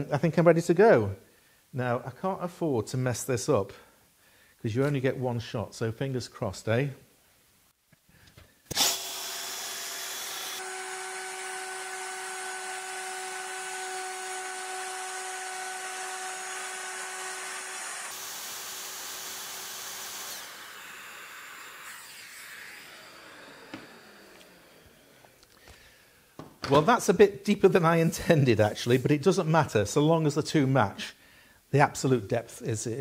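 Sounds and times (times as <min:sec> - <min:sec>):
router whining: 0:08.7 - 0:25.6.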